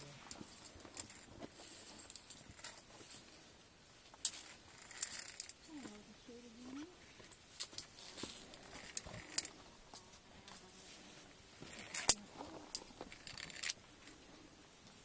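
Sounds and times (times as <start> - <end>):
metallic clicks of carabiners on cable: 4.2 - 5.6, 11.7 - 13.8.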